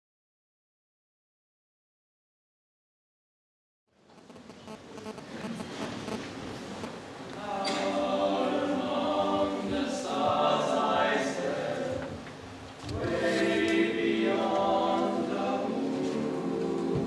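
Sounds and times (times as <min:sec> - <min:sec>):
male voices singing a cappella: 0:07.4 - 0:12.2, 0:12.9 - 0:17.0.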